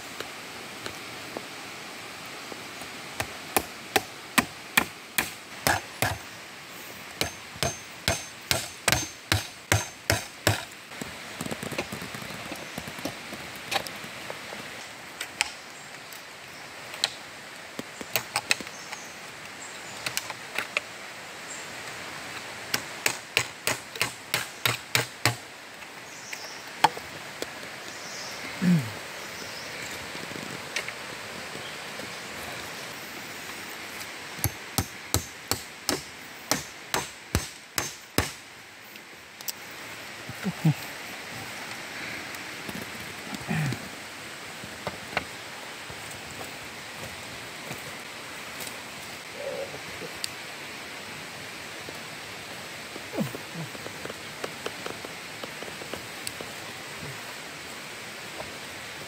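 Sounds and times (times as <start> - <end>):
hammer knocking on wooden stakes: 3.6 - 6.2, 7.2 - 10.7, 22.7 - 25.4, 34.4 - 38.4.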